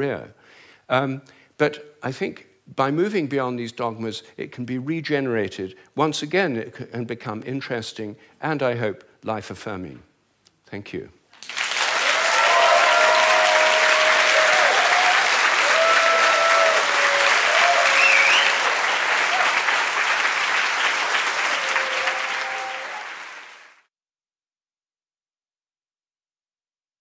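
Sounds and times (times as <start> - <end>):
audience applauding: 11.4 - 23.9.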